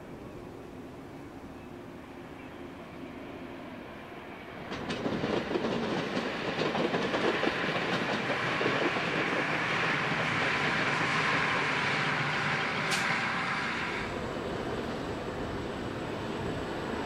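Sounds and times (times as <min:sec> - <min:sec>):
railcars running noise: 0:00.0 - 0:17.0
wheels clicking over rail joints: 0:04.7 - 0:09.4.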